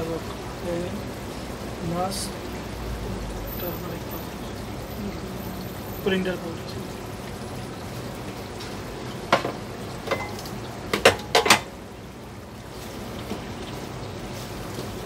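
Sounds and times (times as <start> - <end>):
sizzling in a frying pan: 0.0 - 15.0
kitchenware clicks and knocks: 9.3 - 11.7.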